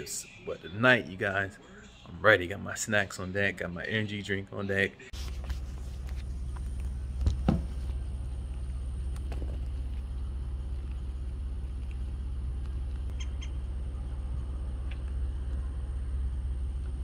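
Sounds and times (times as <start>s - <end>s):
low outdoor rumble: 5.2s - 17.0s
short thump: 7.2s - 7.8s.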